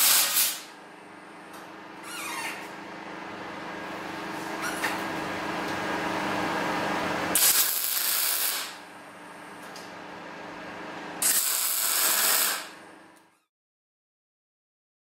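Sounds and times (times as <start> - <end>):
arc welding bursts: 0.0 - 0.7, 7.3 - 8.8, 11.2 - 12.8
steady hum: 0.0 - 13.2.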